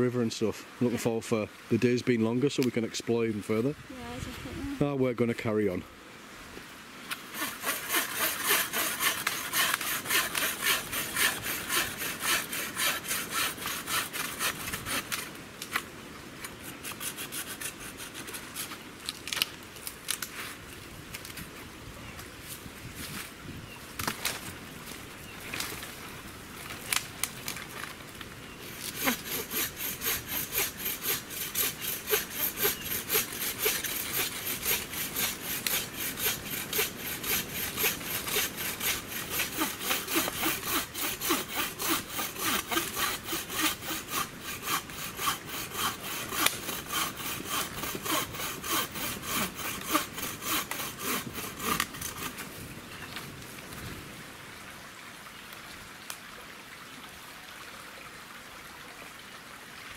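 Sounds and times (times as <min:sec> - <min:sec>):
bow saw cutting branch: 0:07.1 - 0:20.5, 0:28.6 - 0:52.5.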